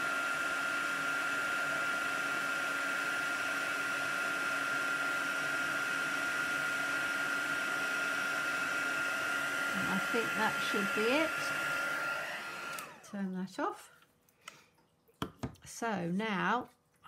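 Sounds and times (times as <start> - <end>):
heat gun blowing with high whine: 0.0 - 13.1.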